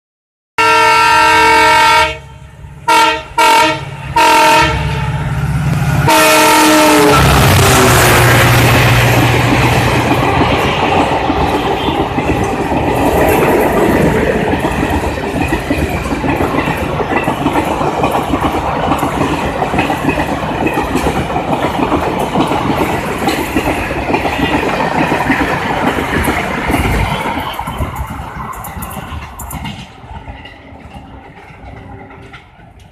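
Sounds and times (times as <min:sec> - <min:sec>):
train horn blasts and toots: 0:00.6 - 0:05.4, 0:06.0 - 0:08.5
train wheels rushing on rails: 0:00.6 - 0:32.9.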